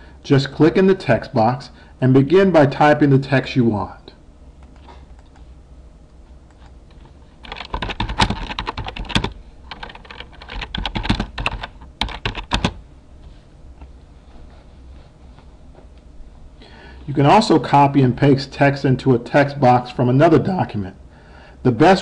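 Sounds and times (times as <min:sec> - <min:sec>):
typing on computer keyboard: 0:07.4 - 0:12.8.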